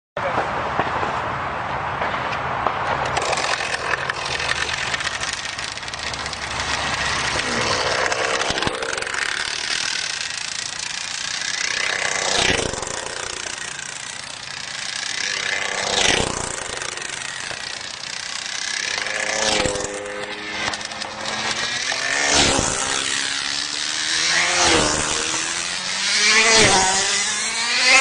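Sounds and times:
two-stroke engine high whine: 0:03.0 - 0:28.0.

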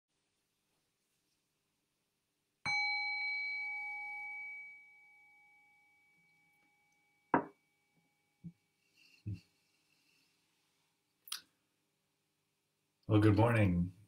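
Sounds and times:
meditation bell ringing: 0:02.7 - 0:08.4.

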